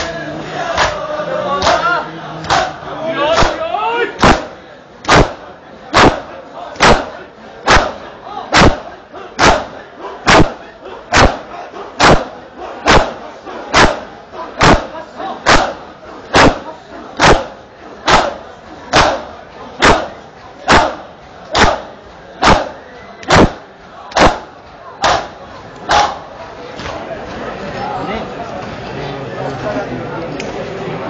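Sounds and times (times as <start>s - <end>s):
crowd shouting: 0.0s - 27.0s
hands slapping chests in unison: 0.8s - 1.0s, 1.6s - 3.6s, 4.2s - 6.2s, 6.8s - 14.0s, 14.6s - 16.6s, 17.2s - 17.5s, 18.1s - 20.1s, 20.7s - 25.3s.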